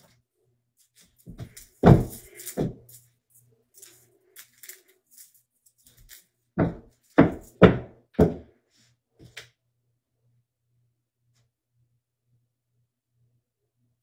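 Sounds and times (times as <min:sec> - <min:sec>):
heavy thumps in tiled room: 0:01.3 - 0:02.9, 0:06.6 - 0:08.6.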